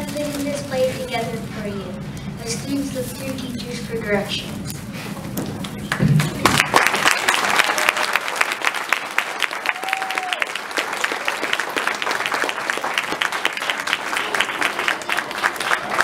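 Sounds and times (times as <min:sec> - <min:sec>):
audience applauding: 0:05.7 - 0:16.0.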